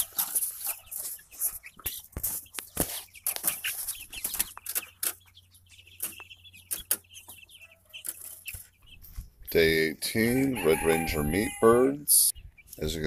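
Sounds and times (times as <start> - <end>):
clicks and rustles: 0.0 - 5.2
chicks peeping: 0.0 - 13.0.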